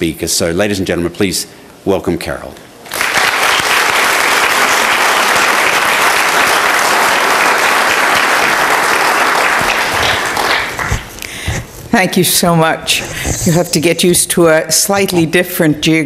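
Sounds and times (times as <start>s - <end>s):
audience applauding: 2.9s - 11.3s.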